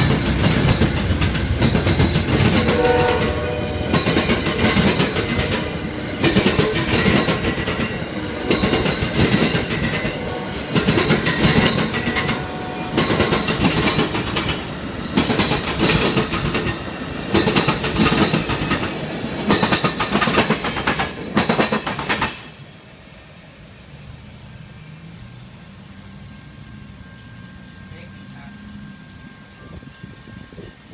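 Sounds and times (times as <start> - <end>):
train wheels clattering over rail joints: 0.0 - 2.8, 4.0 - 12.4, 13.0 - 22.5
faint rumble of train: 0.0 - 30.9.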